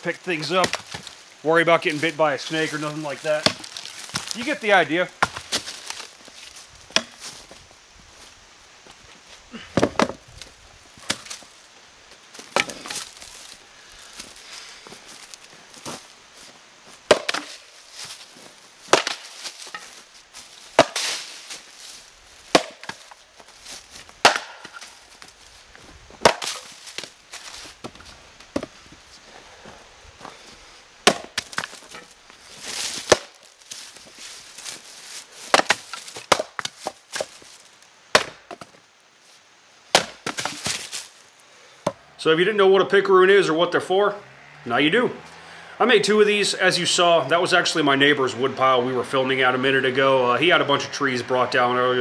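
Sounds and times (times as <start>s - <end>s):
axe splitting firewood: 0.4s - 1.2s, 2.7s - 6.1s, 6.9s - 7.4s, 9.6s - 10.3s, 11.0s - 11.4s, 12.4s - 13.6s, 17.1s - 18.2s, 18.8s - 21.6s, 22.5s - 23.2s, 24.0s - 25.3s, 26.2s - 28.7s, 31.0s - 34.0s, 35.4s - 37.5s, 38.1s - 38.8s, 39.9s - 41.0s.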